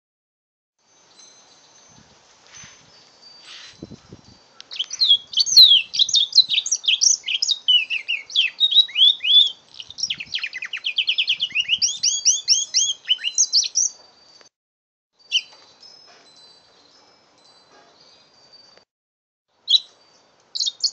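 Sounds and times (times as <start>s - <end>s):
bird singing chirps and trills: 0.9s - 14.5s, 15.2s - 18.8s, 19.6s - 20.9s.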